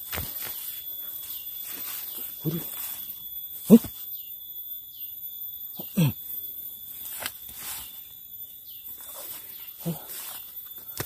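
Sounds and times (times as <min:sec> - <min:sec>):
undergrowth rustling: 0:00.0 - 0:04.3, 0:05.8 - 0:11.0
faint high chirps: 0:00.0 - 0:11.0
man exhaling with grunt: 0:05.8 - 0:06.2.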